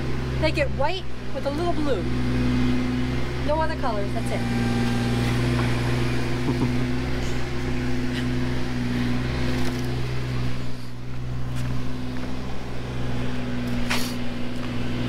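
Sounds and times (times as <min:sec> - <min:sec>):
machine humming: 0:04.2 - 0:15.0.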